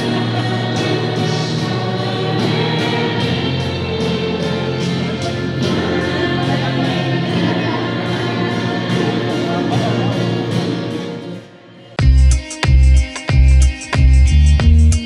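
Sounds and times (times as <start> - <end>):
choir singing: 0.0 - 12.0
instrumental accompaniment with beat: 0.0 - 15.0.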